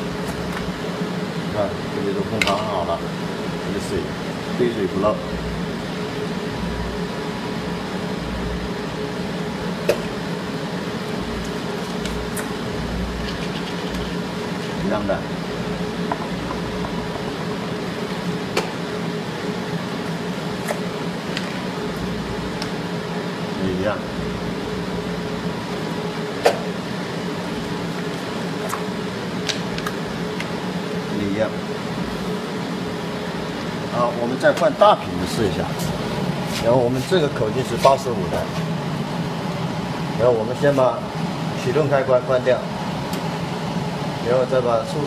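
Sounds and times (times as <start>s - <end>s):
machine fan hum: 0.0s - 45.0s
sealing machine hum: 9.0s - 23.8s.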